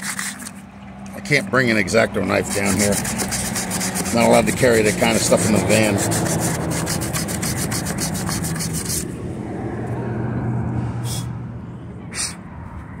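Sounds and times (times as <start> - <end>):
rapid rhythmic rasping: 2.3 - 9.0.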